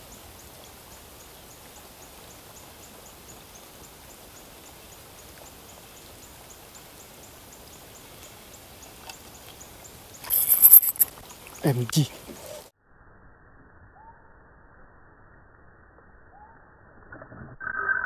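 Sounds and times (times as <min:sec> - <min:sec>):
rain falling on water: 0:00.0 - 0:10.3.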